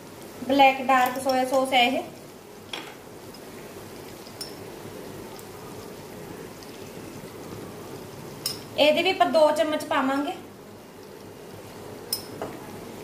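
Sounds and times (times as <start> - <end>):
masala sizzling in a pan: 0.0 - 13.0
light clink: 4.4 - 4.6, 12.1 - 12.5.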